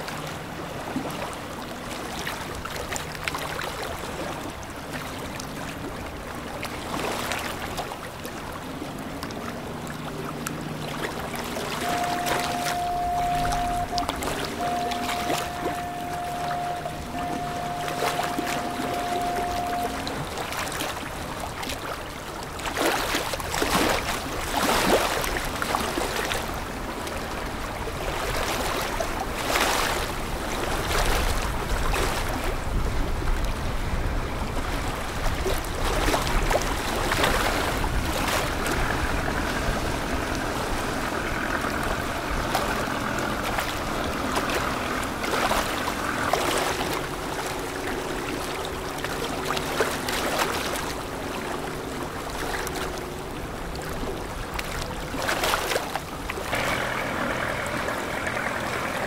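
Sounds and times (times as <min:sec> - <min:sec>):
rushing splashing river water: 0:00.0 - 0:59.0
ship bow wave churning water: 0:00.0 - 0:59.0
steady higher hum: 0:11.2 - 0:21.0, 0:56.4 - 0:59.0.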